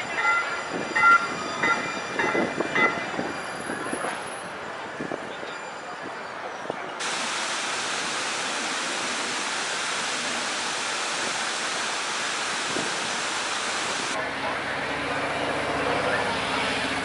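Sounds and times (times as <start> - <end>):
steady rushing noise: 7.0 - 14.2.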